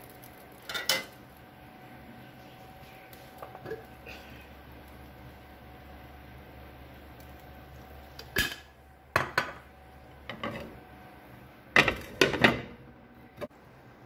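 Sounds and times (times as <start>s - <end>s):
kitchenware clinking and knocking: 8.4s - 9.6s, 11.8s - 12.8s.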